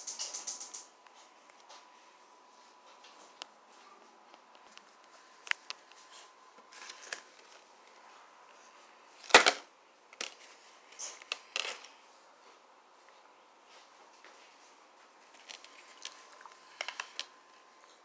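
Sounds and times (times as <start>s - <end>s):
rustling of handled objects: 4.5s - 9.6s, 13.7s - 17.4s.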